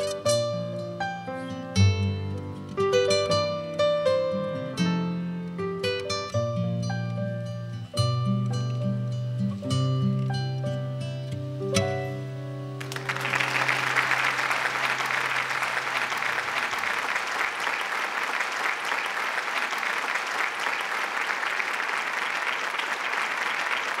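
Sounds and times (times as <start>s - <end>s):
audience applauding: 12.8s - 24.0s.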